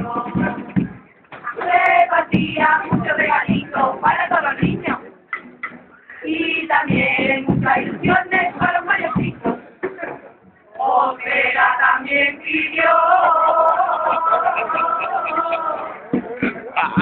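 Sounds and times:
women singing in chorus: 0.0s - 5.1s, 6.1s - 9.5s, 10.8s - 16.2s
struck beat: 0.0s - 6.0s, 6.7s - 10.2s, 14.2s - 17.0s.

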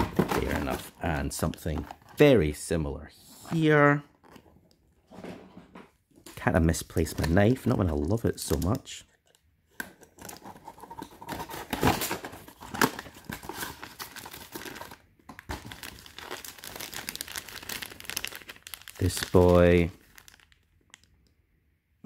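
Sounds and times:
plastic bags crinkling: 11.2s - 21.3s.

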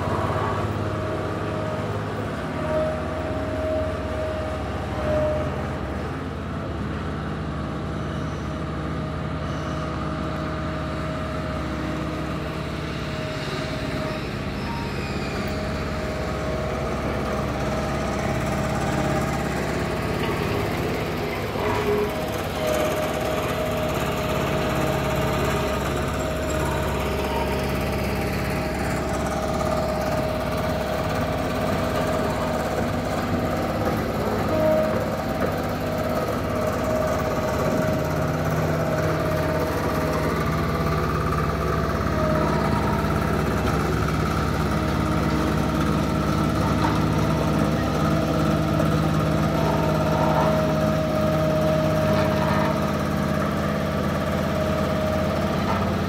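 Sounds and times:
small motor droning with whine: 0.0s - 56.0s.

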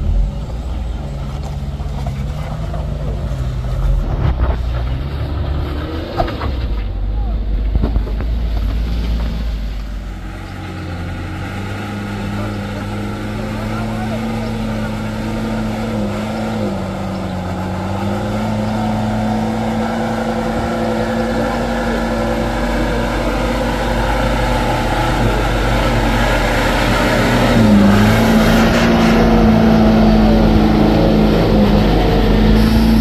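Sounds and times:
truck engines humming: 0.0s - 33.0s.

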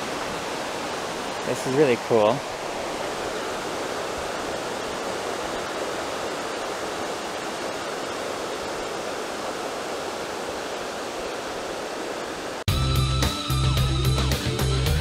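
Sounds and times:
creek rushing over rocks: 0.0s - 12.7s.

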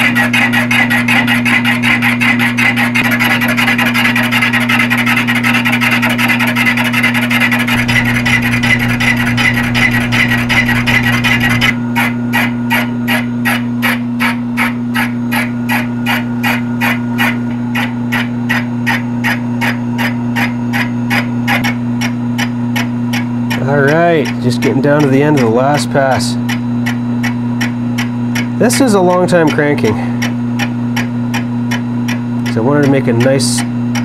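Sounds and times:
fly cutter scraping metal: 0.0s - 12.9s, 22.4s - 27.4s, 28.4s - 31.1s, 32.4s - 34.0s
motor hum: 0.0s - 34.0s.

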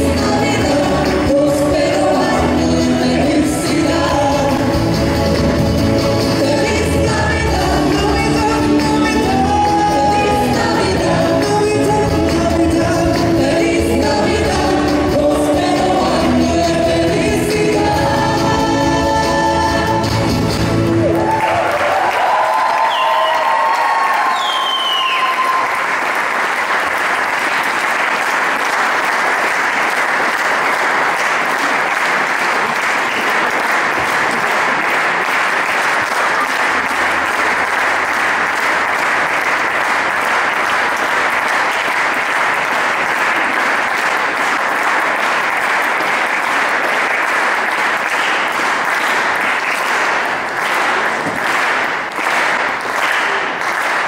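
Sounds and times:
audience applauding: 20.4s - 54.0s.

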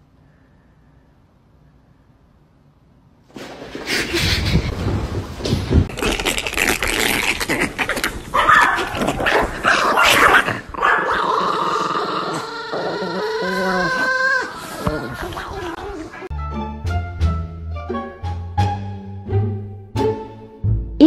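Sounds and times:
dog whining: 7.2s - 16.3s
small dogs yipping and barking: 8.0s - 11.4s.

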